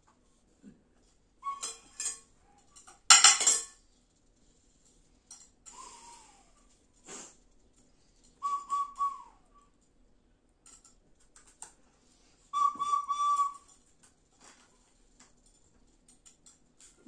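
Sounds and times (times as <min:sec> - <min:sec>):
whistle blown: 0:01.4 - 0:01.9, 0:08.4 - 0:09.4, 0:12.5 - 0:13.7
spoon clinking against dishes: 0:01.6 - 0:03.8.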